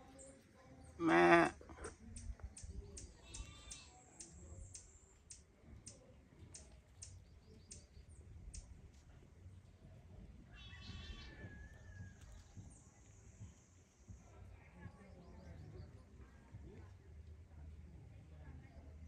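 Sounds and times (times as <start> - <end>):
goat kids bleating: 1.0 - 1.9, 3.2 - 3.9, 10.5 - 11.4.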